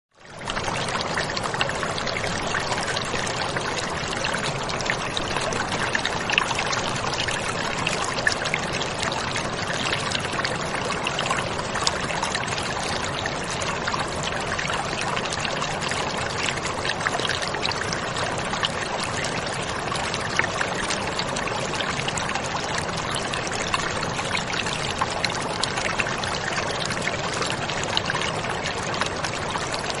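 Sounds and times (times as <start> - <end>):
steady rushing noise with crackles: 0.1 - 30.0.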